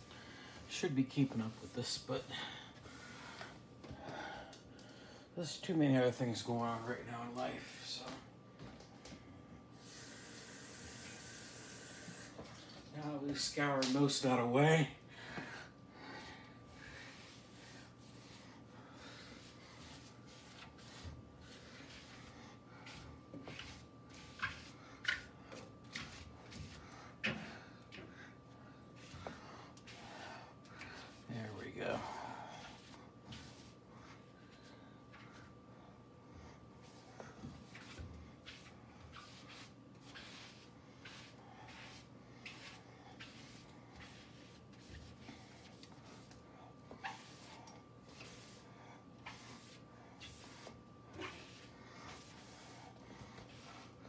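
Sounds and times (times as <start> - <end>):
faint background hum: 0.0 - 54.0
wet sponge scrubbing stovetop: 0.4 - 2.2, 16.9 - 27.4, 36.8 - 54.0.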